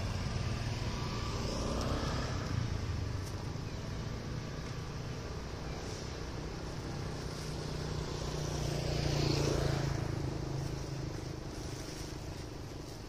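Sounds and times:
vehicle passing with tyre noise: 0:00.0 - 0:13.0.

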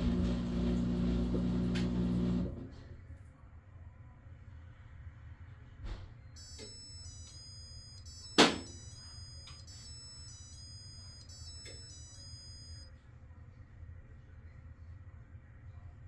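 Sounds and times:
washing machine beeping tune: 0:06.4 - 0:12.9.

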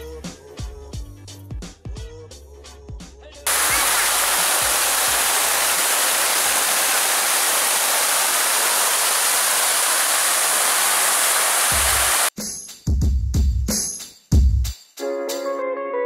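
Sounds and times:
rush of falling water: 0:03.5 - 0:12.3.

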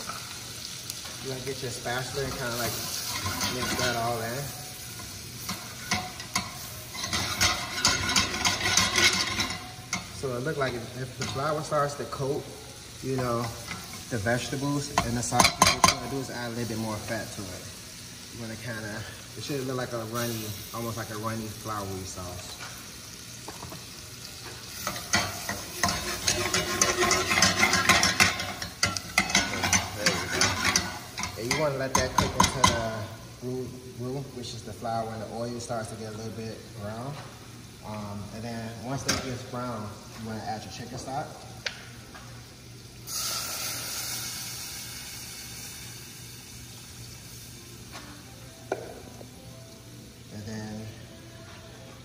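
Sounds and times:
stock hissing in hot pan: 0:00.0 - 0:37.1, 0:42.4 - 0:47.9
frying sizzle: 0:00.0 - 0:52.0
spatula scraping a saucepan: 0:24.9 - 0:31.6.

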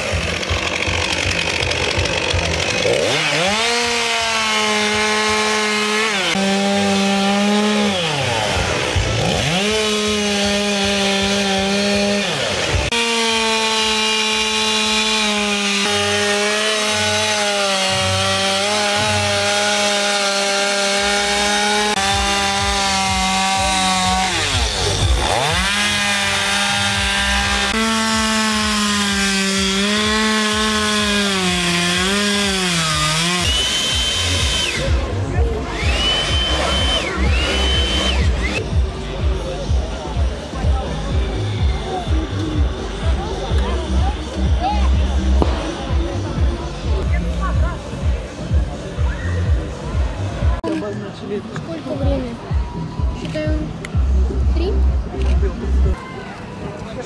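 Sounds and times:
chainsaw cutting wood: 0:00.0 - 0:48.8.

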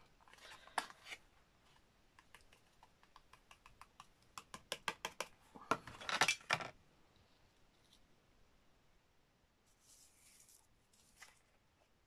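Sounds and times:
paper rustle: 0:09.7 - 0:11.6.

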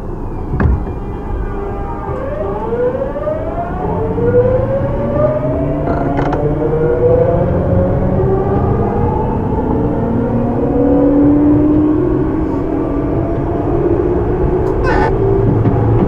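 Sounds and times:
train running rumble: 0:12.4 - 0:16.0.

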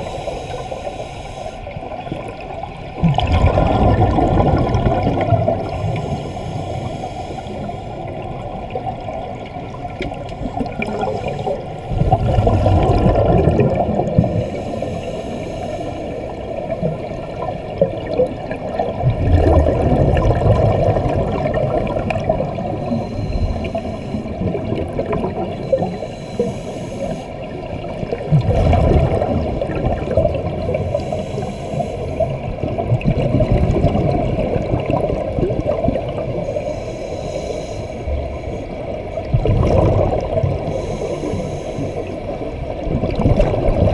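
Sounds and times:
underwater rumble and hiss: 0:00.0 - 0:43.9
exhaled bubbles rushing: 0:02.1 - 0:06.2, 0:08.1 - 0:14.5, 0:16.7 - 0:25.9, 0:27.4 - 0:31.0, 0:32.4 - 0:36.4, 0:39.2 - 0:40.6, 0:42.7 - 0:43.9.

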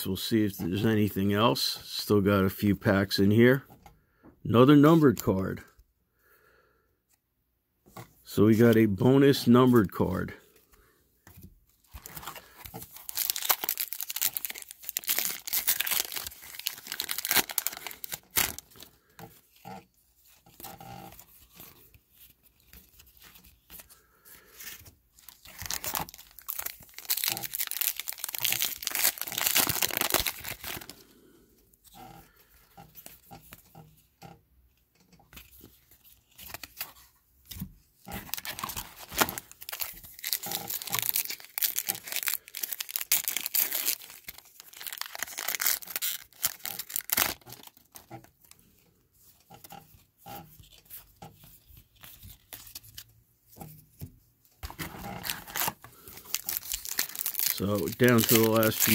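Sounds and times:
cards rustling: 0:08.0 - 0:33.7, 0:35.3 - 0:53.1, 0:54.6 - 0:58.9
foil wrappers tearing and crinkling: 0:12.0 - 0:19.8, 0:25.2 - 0:31.1, 0:38.1 - 0:48.2, 0:54.7 - 0:58.9.

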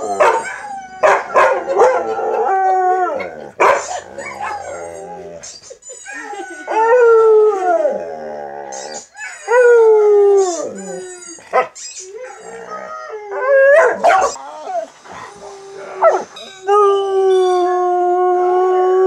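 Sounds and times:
dog howling: 0:00.0 - 0:05.5, 0:06.1 - 0:19.0
dog yipping: 0:13.8 - 0:14.4.

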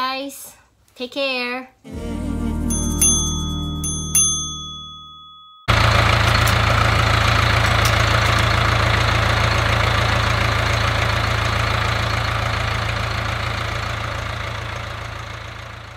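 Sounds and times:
diesel engine idling: 0:05.7 - 0:15.9.

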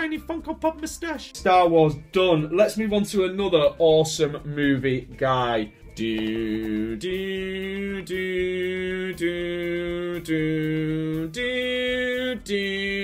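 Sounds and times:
person singing long notes: 0:06.0 - 0:13.0.

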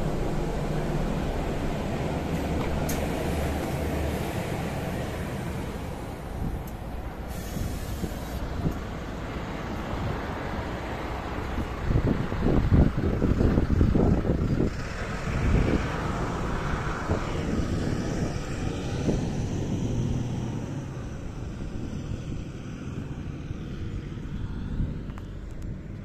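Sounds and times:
vehicle driving away: 0:00.0 - 0:26.0
wind gusts on microphone: 0:00.0 - 0:26.0.

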